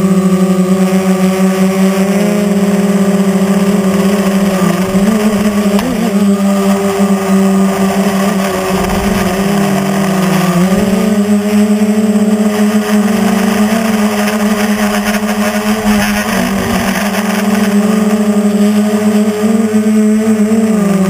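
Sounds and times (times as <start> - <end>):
drone propellers buzzing: 0.0 - 21.0
wind noise on microphone: 2.4 - 19.0.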